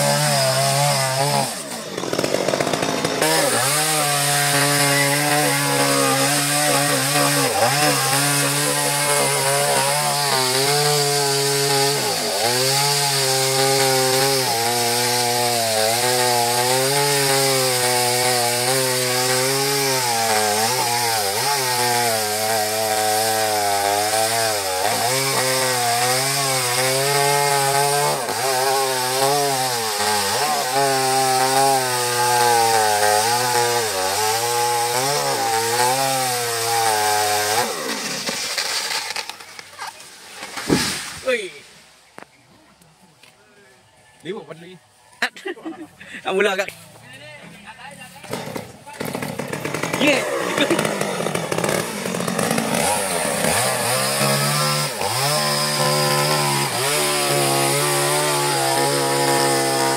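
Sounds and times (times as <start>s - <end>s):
chainsaw cutting wood: 0.0s - 41.4s, 48.1s - 59.9s.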